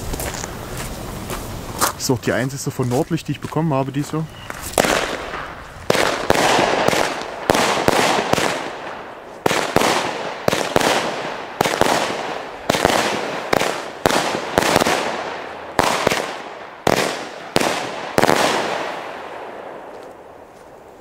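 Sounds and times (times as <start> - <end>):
firework battery bangs: 4.5 - 19.6.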